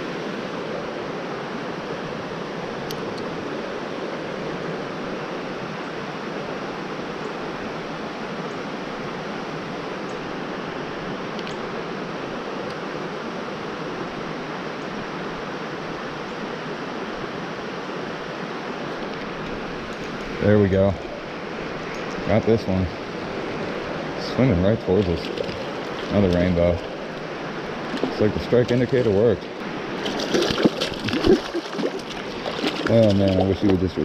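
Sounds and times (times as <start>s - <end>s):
creek water rushing: 0.0s - 34.0s.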